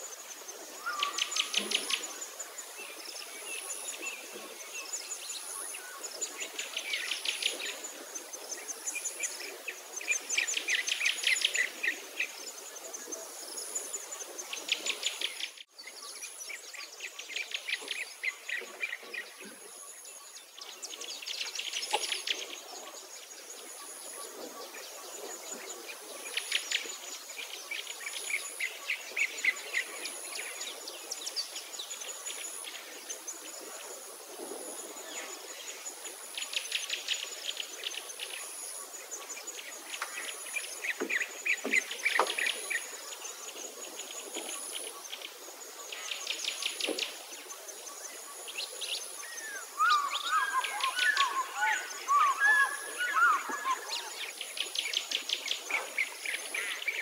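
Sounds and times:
pulsing insect chirp: 0.0 - 57.0
birds singing in rapid trills: 45.8 - 57.0.

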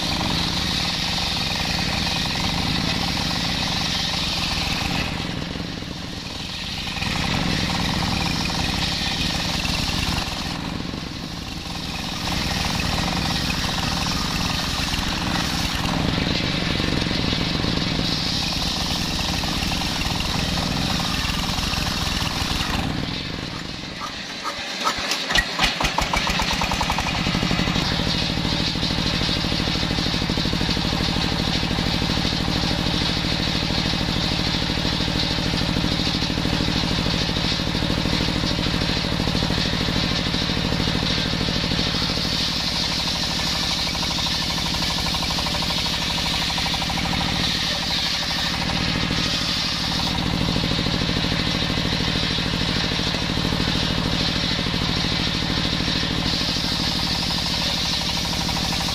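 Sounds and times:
diesel engine starting and running: 0.0 - 58.9
circular saw ripping log: 11.6 - 28.3, 45.7 - 51.6.

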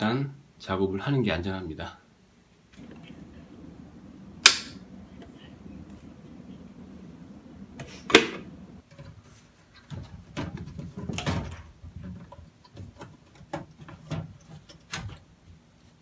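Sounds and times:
sharp click: 4.4 - 4.8.

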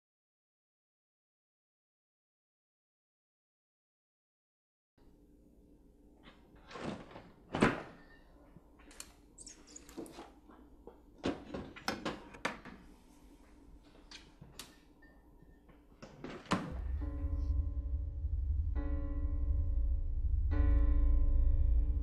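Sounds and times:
low steady hum: 16.7 - 22.0.

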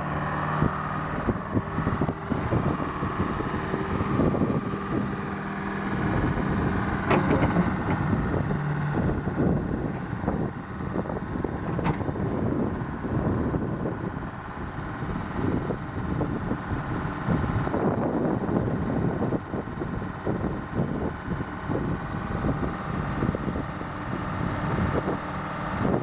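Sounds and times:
excavator diesel engine and hydraulics: 0.0 - 26.0
short high squeaks: 16.2 - 17.2, 21.2 - 22.0.

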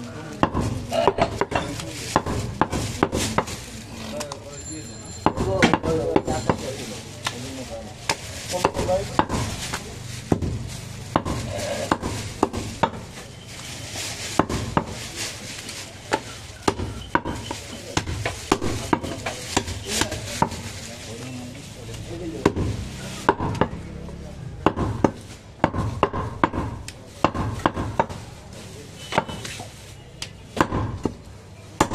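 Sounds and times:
cleaver chopping on wooden block: 10.3 - 13.0, 22.4 - 23.8, 24.6 - 28.2, 30.6 - 31.2.

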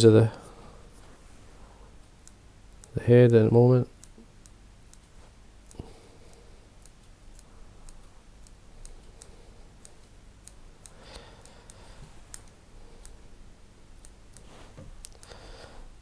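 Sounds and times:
soft rustle: 0.5 - 2.0, 5.0 - 5.5, 14.3 - 16.0
scissors snipping clicks: 2.1 - 13.2, 14.0 - 14.4, 15.0 - 15.4.

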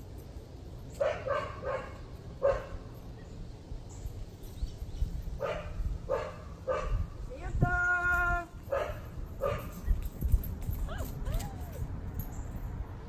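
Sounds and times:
dog barking: 1.0 - 2.9, 5.4 - 7.1, 8.7 - 9.8.

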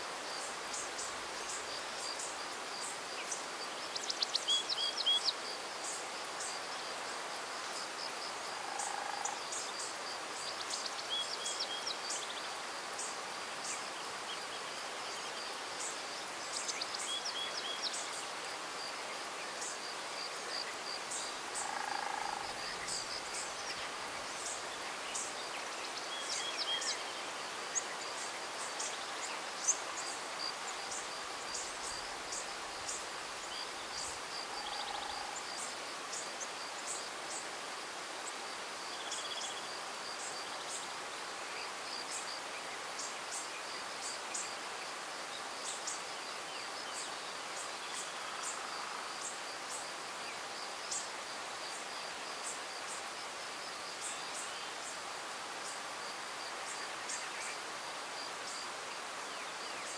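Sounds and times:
insects trilling: 20.5 - 25.5, 29.6 - 37.4.

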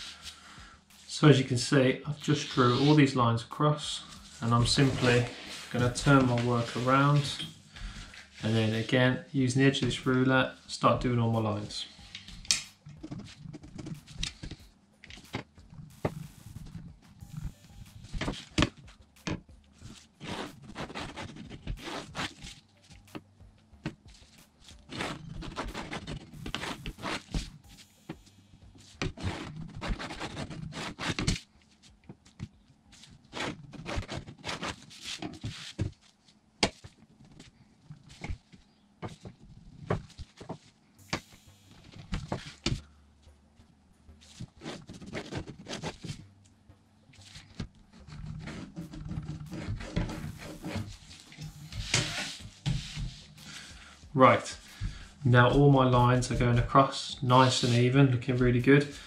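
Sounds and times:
pencil scraping: 19.8 - 23.2, 24.1 - 27.9, 28.8 - 31.4, 32.9 - 35.9, 44.2 - 46.2, 47.2 - 53.8.

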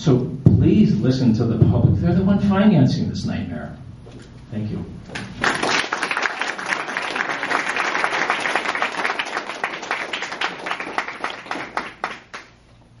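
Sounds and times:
audience applauding: 5.2 - 12.6.

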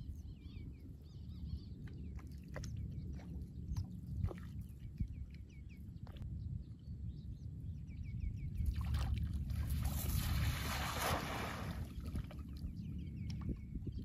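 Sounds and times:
water splashing: 8.8 - 12.4.

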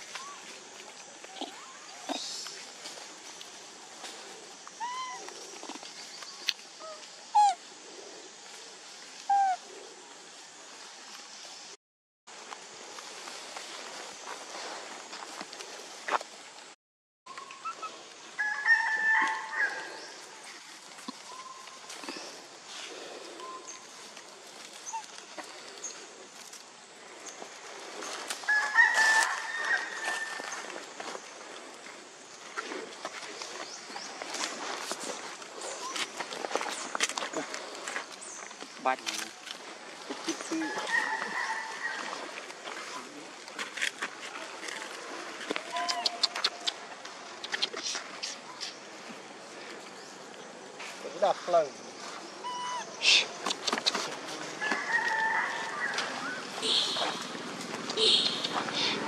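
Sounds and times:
monkey coo calls: 4.8 - 5.4, 6.8 - 7.7, 9.3 - 9.7, 24.8 - 25.2, 40.2 - 42.3, 45.6 - 48.8, 52.4 - 57.3, 57.9 - 59.0
short thin high animal calls: 45.6 - 46.9, 52.4 - 53.4
high-pitched held animal call: 52.4 - 53.2.

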